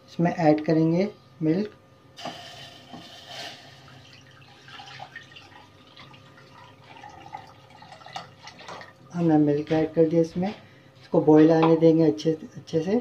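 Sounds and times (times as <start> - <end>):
milk pouring into saucepan: 2.2 - 9.0.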